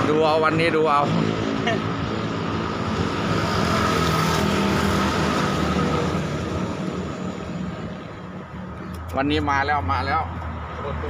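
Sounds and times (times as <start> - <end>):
motor engine passing: 0.0 - 8.8.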